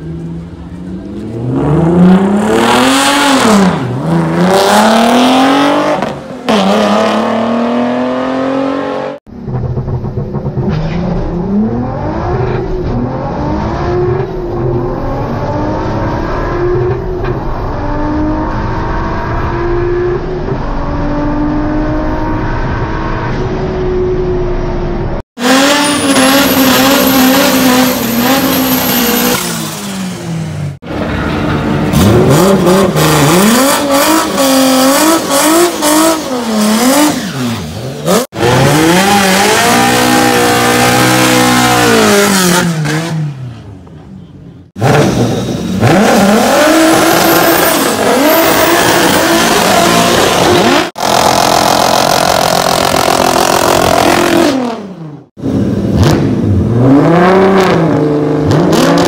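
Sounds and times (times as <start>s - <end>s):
racing car engine revving: 1.2s - 23.5s, 31.7s - 43.6s, 44.8s - 59.0s
tyre squeal: 25.6s - 29.5s.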